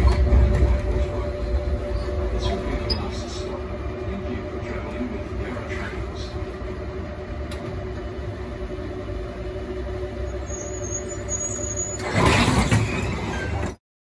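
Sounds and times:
tram rumble and hum: 0.0 - 13.8
faint high squeal: 10.4 - 12.2.

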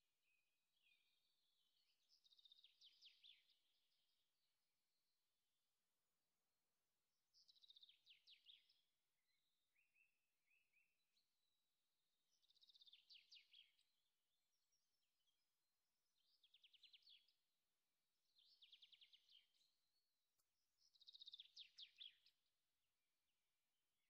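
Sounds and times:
faint birdsong: 0.0 - 24.0.

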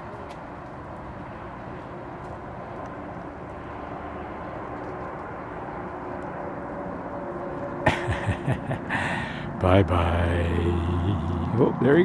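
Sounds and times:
distant engine rumble: 7.9 - 12.0.

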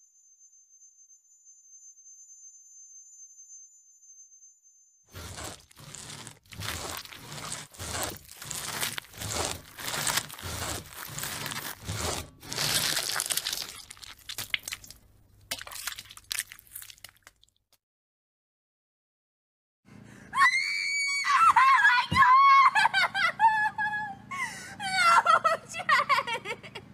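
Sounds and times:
crunching and tearing: 5.1 - 17.6.

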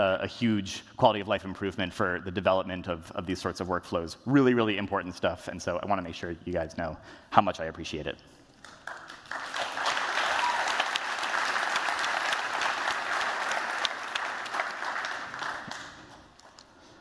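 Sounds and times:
audience applauding: 8.6 - 16.7.

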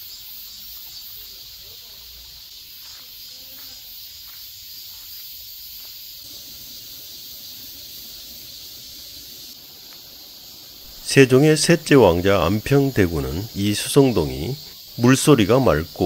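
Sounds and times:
insects chorus: 0.0 - 16.0.

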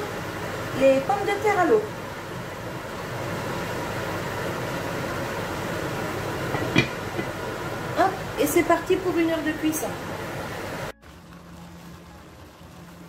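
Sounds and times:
range hood fan running: 0.0 - 13.0
lid clinking onto pot: 6.5 - 7.4.

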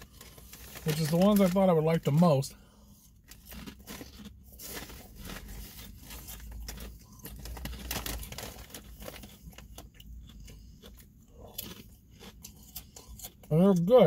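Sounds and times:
chip bag rustling: 0.0 - 2.5, 3.2 - 9.9
potato chips crunching: 0.0 - 14.0.

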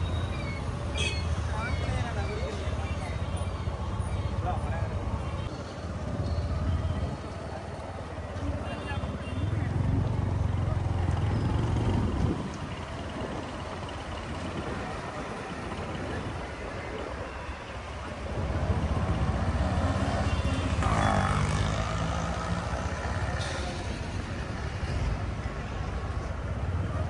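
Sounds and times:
street noise: 0.0 - 27.0
diesel bus engine rumble: 9.7 - 19.6, 22.5 - 27.0.

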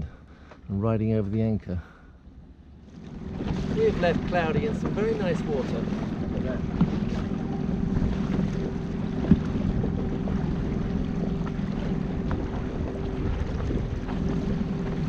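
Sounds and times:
outboard motor running: 0.0 - 15.0
wind on microphone: 3.1 - 15.0.

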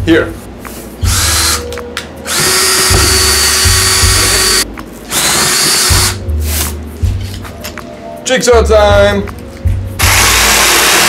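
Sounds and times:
cordless drill boring through cardboard: 2.3 - 6.2, 10.0 - 11.0.

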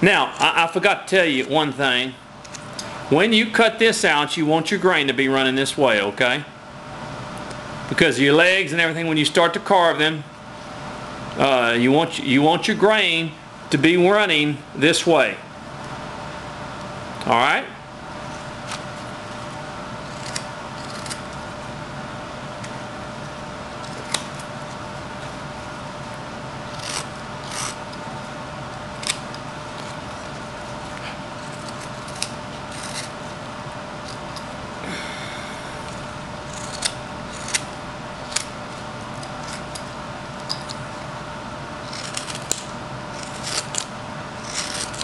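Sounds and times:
steady hum: 0.0 - 45.0
knife scraping wood: 18.2 - 21.5, 23.2 - 25.3, 26.6 - 28.2, 28.9 - 33.4, 35.8 - 41.1, 41.8 - 45.0
knife cutting wood shavings: 20.0 - 21.4, 26.7 - 28.0, 28.9 - 33.2, 36.4 - 40.8, 41.8 - 45.0.

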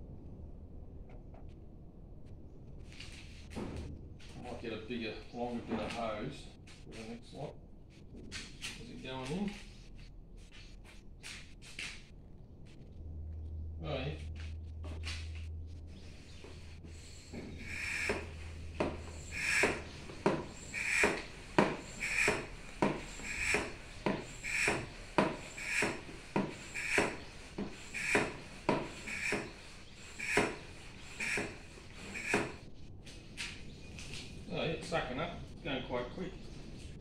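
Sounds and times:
hand pump swishing air: 16.8 - 32.6.

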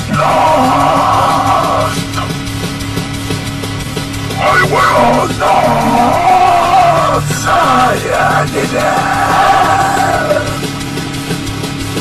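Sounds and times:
loud sung vocal: 0.0 - 2.3, 4.4 - 10.6
heavy rock band playing: 0.0 - 12.0.

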